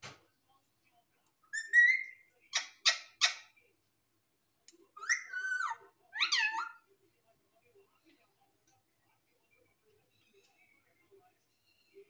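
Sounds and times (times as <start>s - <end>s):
parakeet squawks: 1.5s - 3.6s, 5.0s - 6.8s.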